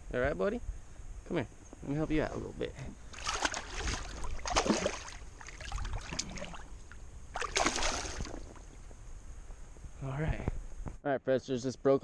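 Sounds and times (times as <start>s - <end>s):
water splashing: 3.0s - 8.7s.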